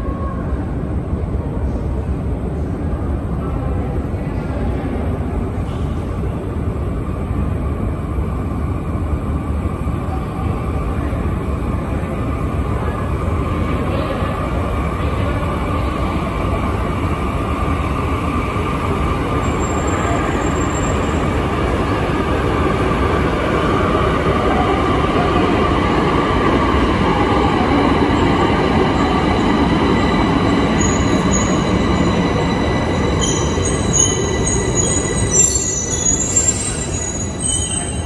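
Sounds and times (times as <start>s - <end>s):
metro train rail rumble: 0.0s - 38.0s
high-pitched tones: 27.4s - 38.0s.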